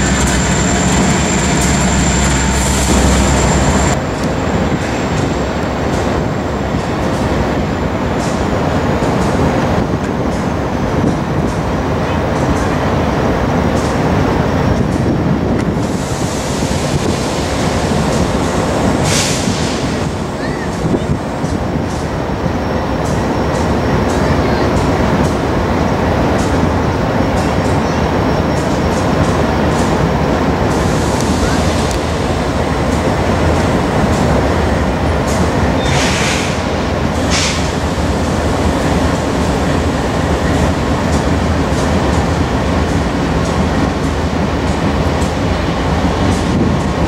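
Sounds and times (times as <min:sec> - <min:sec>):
train wheels rumbling on rail: 0:00.0 - 0:47.0
wind buffeting the microphone: 0:03.8 - 0:47.0
brief hiss: 0:35.9 - 0:37.8.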